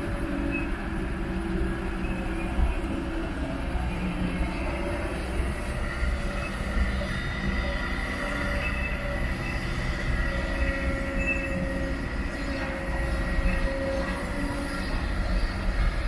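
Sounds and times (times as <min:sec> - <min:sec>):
excavator diesel engine rumble: 0:00.0 - 0:16.0
high squealing whine: 0:05.8 - 0:15.9.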